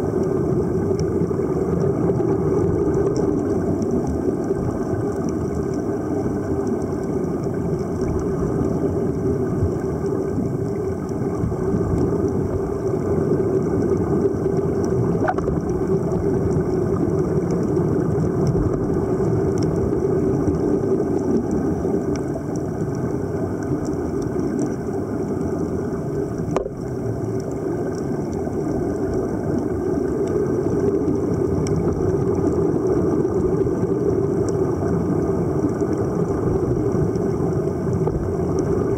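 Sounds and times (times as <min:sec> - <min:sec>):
underwater rumble: 0:00.0 - 0:38.9
faint clicks: 0:17.3 - 0:25.7, 0:26.3 - 0:34.6.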